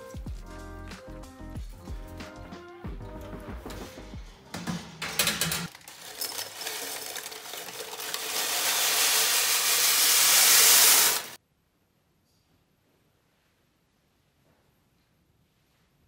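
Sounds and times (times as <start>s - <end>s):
granola rattling into glass jar: 5.4s - 11.4s.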